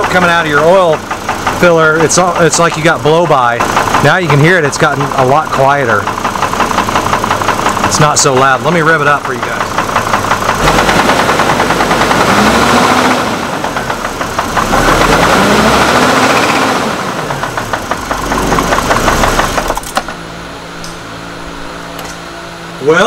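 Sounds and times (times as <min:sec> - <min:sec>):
engine revving with knock: 0:00.0 - 0:22.1
steady hum: 0:18.3 - 0:23.0.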